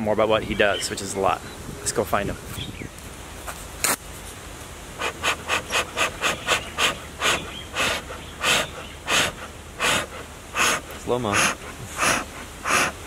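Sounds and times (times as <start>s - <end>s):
bellows puffing air: 4.9s - 13.0s.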